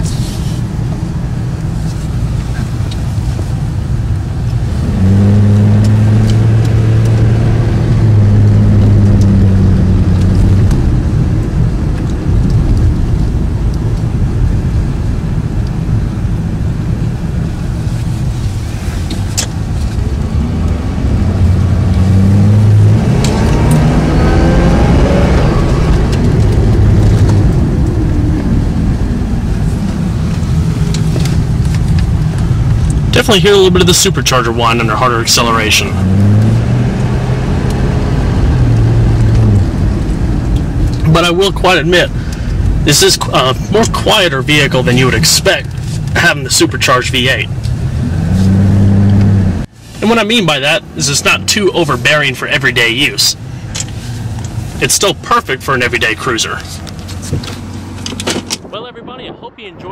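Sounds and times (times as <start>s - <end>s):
car engine from inside cabin: 0.0s - 58.6s
supercharger whine: 0.0s - 59.9s.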